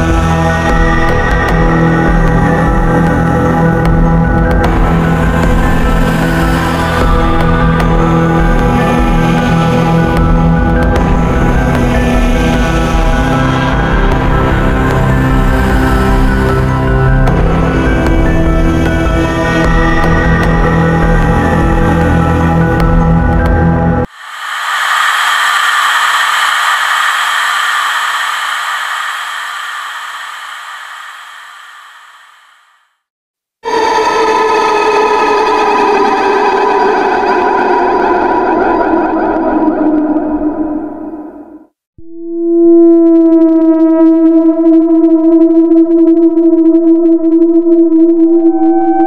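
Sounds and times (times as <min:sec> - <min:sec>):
steady synthesizer tone: 0:24.0 - 0:32.9.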